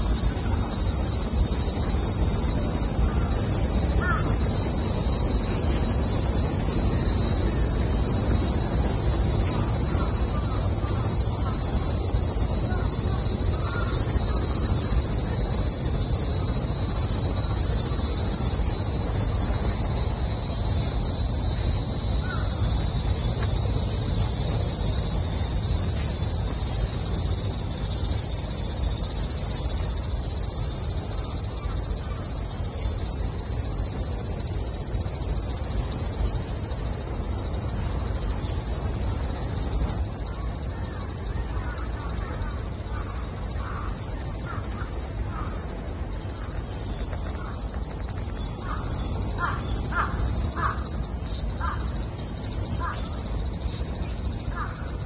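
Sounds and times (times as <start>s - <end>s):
cicadas singing: 0.0s - 55.0s
faint bird calls: 4.0s - 4.4s, 12.7s - 14.6s.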